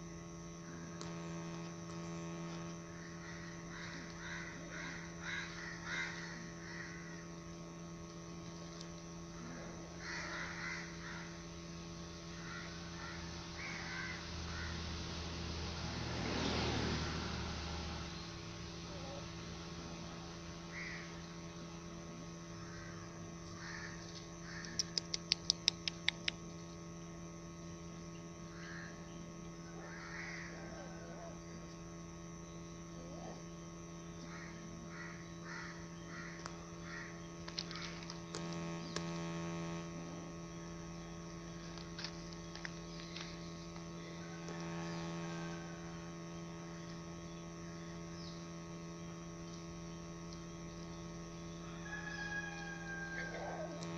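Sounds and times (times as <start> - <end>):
steady low hum: 0.0 - 53.9
sharp clicks: 24.2 - 26.5, 37.4 - 39.5.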